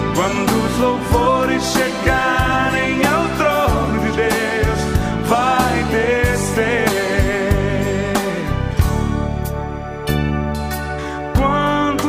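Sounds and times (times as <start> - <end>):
gospel music: 0.0 - 12.0.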